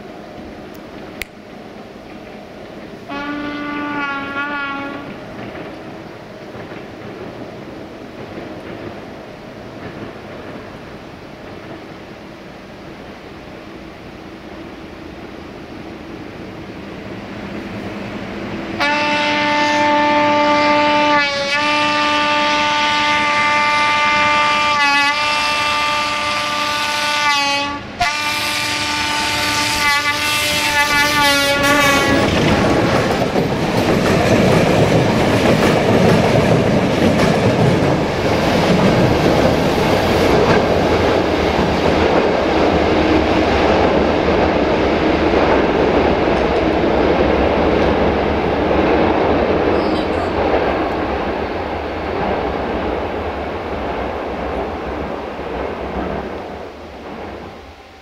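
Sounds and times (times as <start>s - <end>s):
train rushing by with wheel clatter: 0.0s - 58.0s
locomotive horn blasts: 3.1s - 5.2s, 18.8s - 32.3s.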